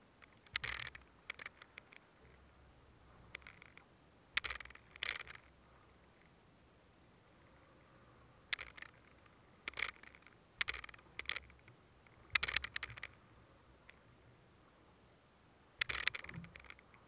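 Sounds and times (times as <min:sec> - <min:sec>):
fishing gear scraping and knocking: 0:00.2 - 0:02.0, 0:03.3 - 0:03.8, 0:04.4 - 0:05.5, 0:08.6 - 0:11.6, 0:12.4 - 0:13.2, 0:15.8 - 0:17.0.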